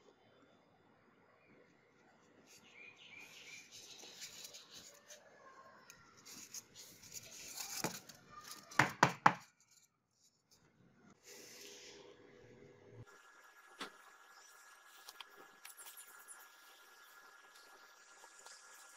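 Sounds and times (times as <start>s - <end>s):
paper scraping on foam: 6.2s - 8.8s.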